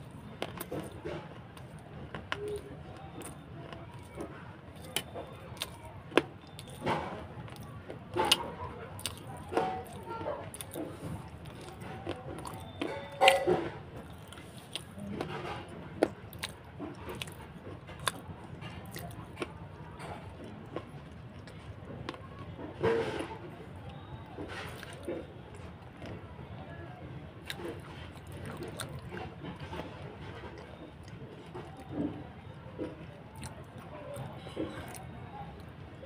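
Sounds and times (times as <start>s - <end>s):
crunching and chewing clay: 0.0s - 36.0s.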